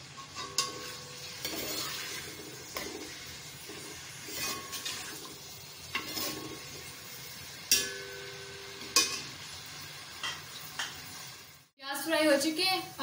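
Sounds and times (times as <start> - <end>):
onions sizzling in oil: 0.0 - 13.0
spoon scraping a pot: 0.2 - 7.0.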